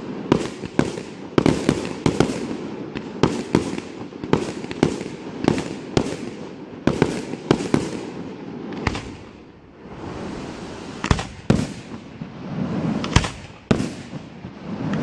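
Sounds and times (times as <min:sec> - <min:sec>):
firework shells bursting: 0:08.7 - 0:09.6, 0:10.9 - 0:15.0.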